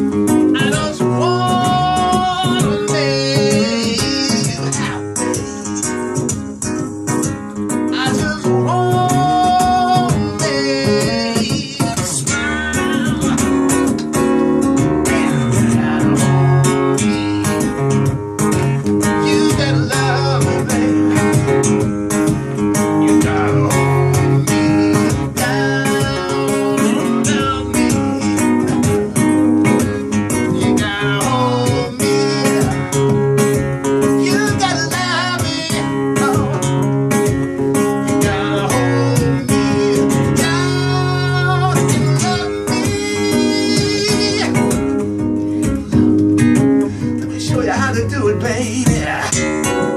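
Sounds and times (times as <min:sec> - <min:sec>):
man singing into microphone: 0:00.0 - 0:06.0, 0:07.9 - 0:13.9, 0:15.1 - 0:17.8, 0:19.0 - 0:21.5, 0:23.0 - 0:28.7, 0:30.4 - 0:33.2, 0:34.0 - 0:36.9, 0:38.0 - 0:45.0, 0:47.2 - 0:49.9
acoustic guitar strummed: 0:00.0 - 0:49.9.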